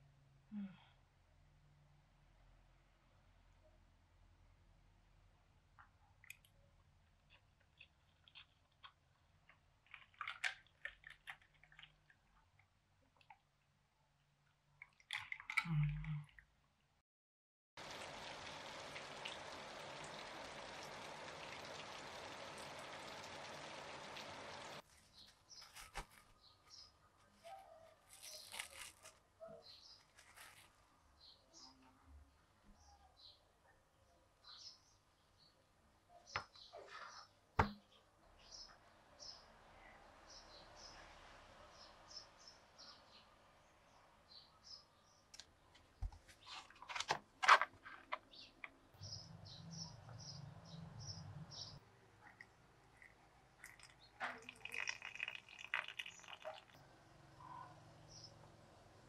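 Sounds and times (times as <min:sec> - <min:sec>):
heavy rain falling: 0:17.8 - 0:24.8
small birds chirping: 0:17.8 - 0:32.0, 0:32.6 - 0:46.6, 0:48.1 - 0:58.5
plastic cling film crinkling: 0:24.8 - 0:26.5, 0:27.3 - 0:29.3, 0:30.0 - 0:30.8.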